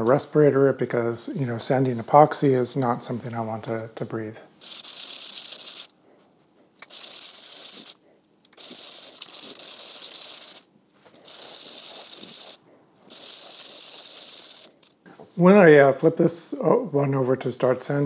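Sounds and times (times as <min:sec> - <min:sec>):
block rasping on sandpaper: 0:04.6 - 0:05.9, 0:06.8 - 0:08.0, 0:08.6 - 0:14.8.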